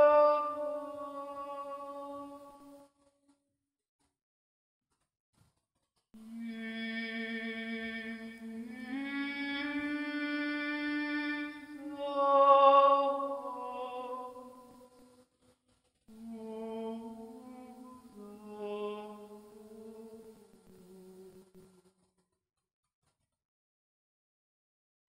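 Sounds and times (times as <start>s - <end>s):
voices chanting long held notes: 0.0s - 2.8s.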